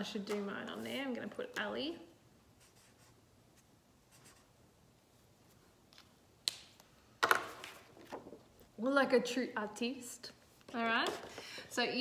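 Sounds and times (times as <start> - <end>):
marker scratching on paper: 2.6 - 4.5.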